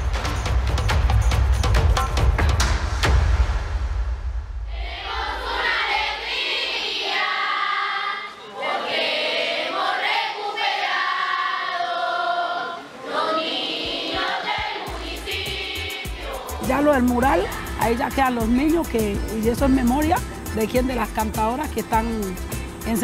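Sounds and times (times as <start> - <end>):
children and women singing: 4.7 - 17.8.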